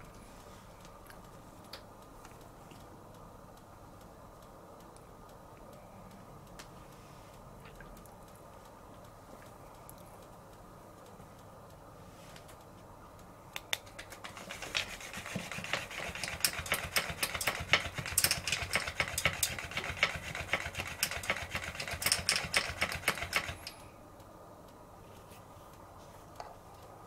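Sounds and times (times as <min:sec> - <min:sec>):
toy fish slapping the floor: 0:13.6 - 0:23.8
toy motor whirring: 0:14.1 - 0:23.8.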